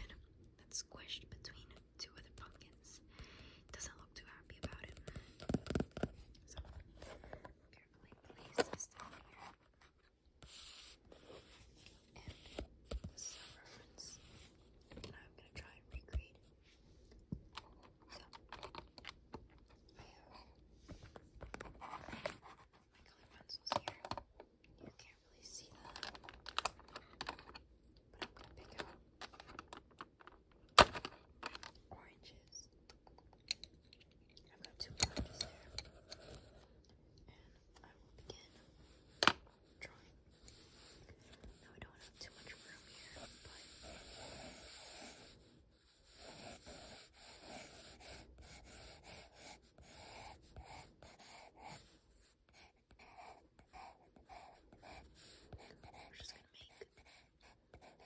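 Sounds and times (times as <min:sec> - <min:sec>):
pencil scratching on paper: 0:10.4 - 0:14.5, 0:38.2 - 0:58.0.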